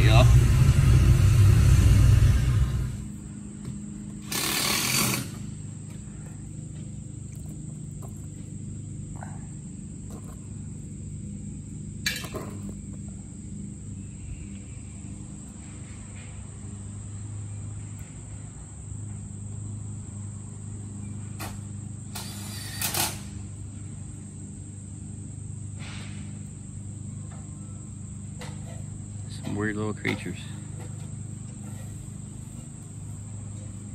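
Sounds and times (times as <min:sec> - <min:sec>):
low steady hum: 0:00.0 - 0:04.3, 0:05.3 - 0:22.2
insects droning: 0:00.0 - 0:33.9.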